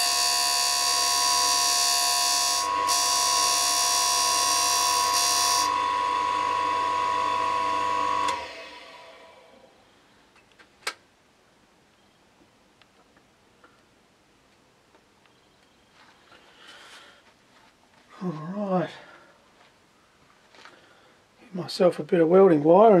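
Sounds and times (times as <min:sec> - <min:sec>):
grinder motor whining: 0:00.0 - 0:09.5.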